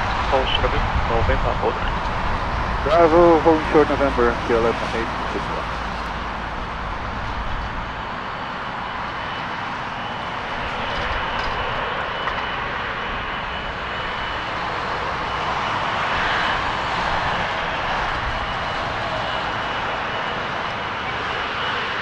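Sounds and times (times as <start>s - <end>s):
high fan whine: 0.0s - 15.6s
jet engine rush: 0.0s - 22.0s.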